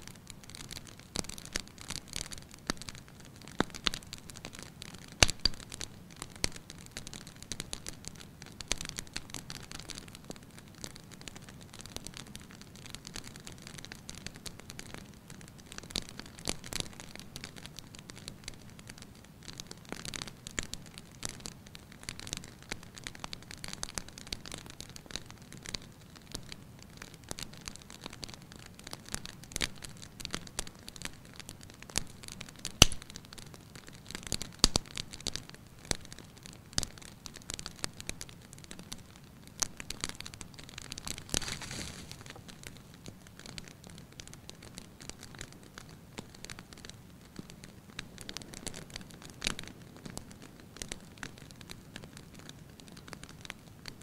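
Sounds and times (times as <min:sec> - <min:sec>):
low fire hiss: 0:00.0 - 0:54.0
wood fire crackling: 0:00.0 - 0:54.0.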